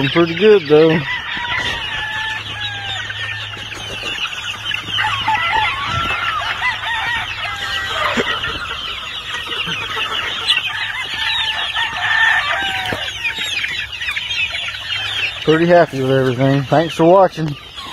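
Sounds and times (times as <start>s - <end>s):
chicks peeping and chirping: 0.0s - 17.9s
longer falling chick calls: 0.0s - 17.9s.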